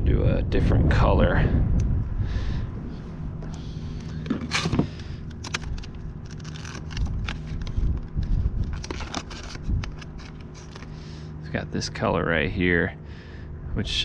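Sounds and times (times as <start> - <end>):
plastic tackle box clicking and rattling: 4.2 - 7.7.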